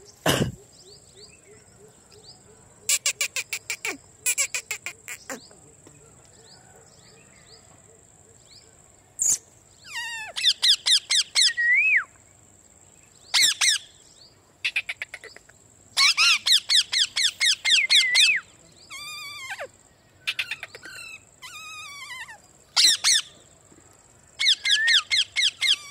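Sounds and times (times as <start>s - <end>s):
parakeets screeching: 16.0s - 19.7s, 20.3s - 23.3s, 24.4s - 25.9s.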